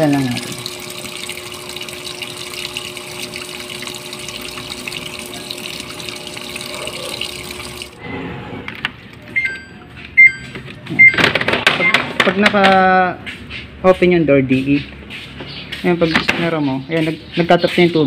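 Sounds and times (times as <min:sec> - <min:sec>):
water rushing into washing machine: 0:00.0 - 0:08.2
short electronic beeps: 0:09.3 - 0:12.1.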